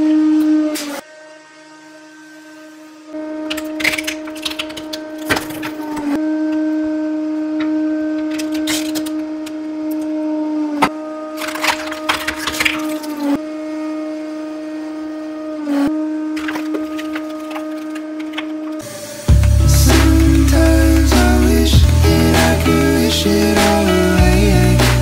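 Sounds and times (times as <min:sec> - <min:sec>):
hydraulic press droning hum: 0:00.0 - 0:25.0
objects cracking and snapping: 0:03.5 - 0:06.2, 0:08.3 - 0:09.6, 0:11.4 - 0:13.3, 0:16.4 - 0:18.8.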